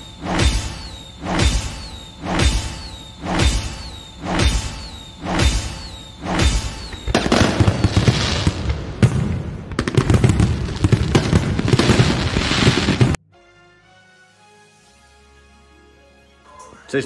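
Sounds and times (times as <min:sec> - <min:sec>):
fireworks bangs and crackling: 0:00.0 - 0:13.2
music: 0:13.2 - 0:17.0.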